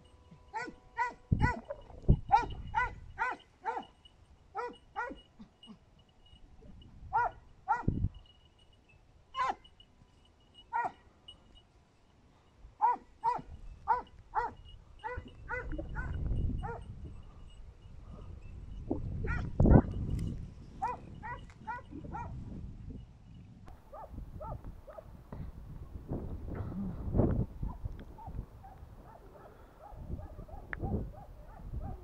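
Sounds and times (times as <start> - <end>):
hounds yelping: 0.5 - 5.8, 7.1 - 8.0, 9.4 - 9.8, 10.6 - 11.1, 12.8 - 17.0, 20.8 - 22.4, 23.8 - 25.1, 27.6 - 32.0.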